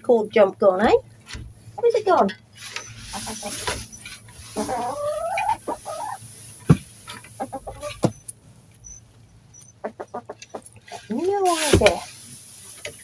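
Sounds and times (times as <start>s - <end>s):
hens clucking: 1.7s - 8.3s, 9.6s - 12.1s.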